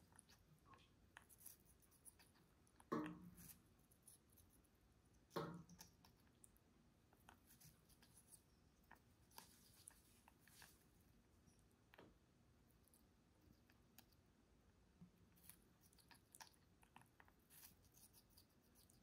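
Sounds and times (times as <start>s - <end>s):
parrot beak biting watermelon: 15.4s - 19.0s.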